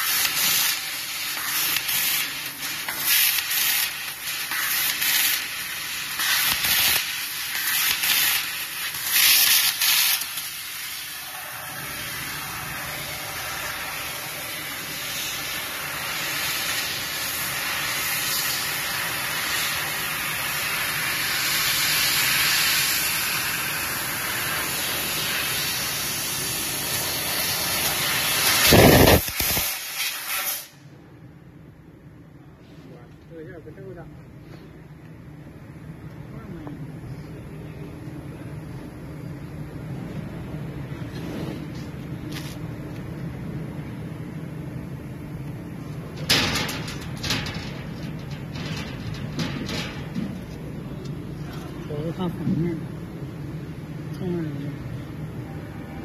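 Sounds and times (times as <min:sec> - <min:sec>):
laser cutter gas hissing: 0:00.0 - 0:30.9, 0:46.2 - 0:51.0.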